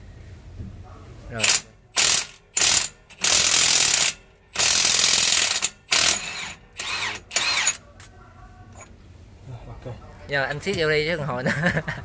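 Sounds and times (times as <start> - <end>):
impact wrench hammering: 1.4 - 7.8.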